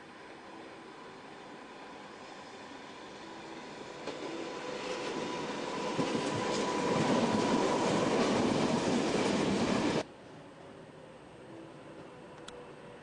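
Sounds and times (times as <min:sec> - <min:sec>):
train wheels rumbling on rail: 0:01.5 - 0:10.1.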